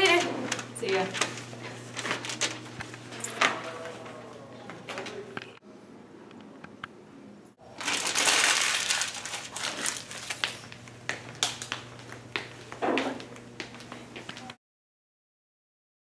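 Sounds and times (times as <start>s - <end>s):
paper crumpling: 0.5s - 3.4s, 7.7s - 10.8s.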